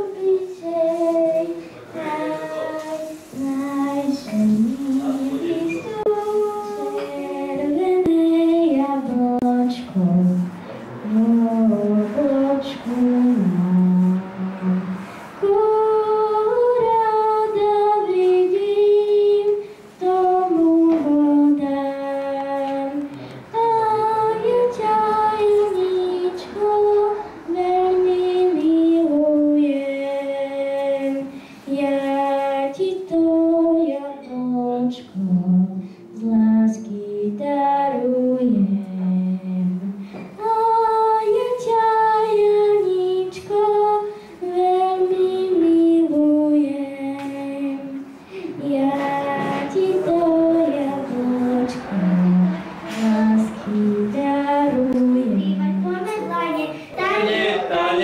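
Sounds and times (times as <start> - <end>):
girl singing into microphone: 0.0 - 58.0
girl breathing: 31.3 - 31.7, 48.1 - 48.6, 56.6 - 57.1.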